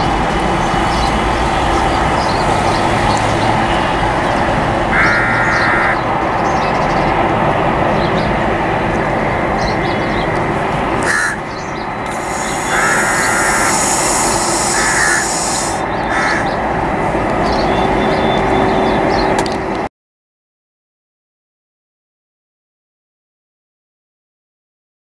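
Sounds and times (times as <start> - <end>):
jet engines roaring: 0.0 - 19.9
crows cawing: 4.9 - 6.0, 11.0 - 11.4, 12.1 - 16.6
high hiss: 12.0 - 16.4.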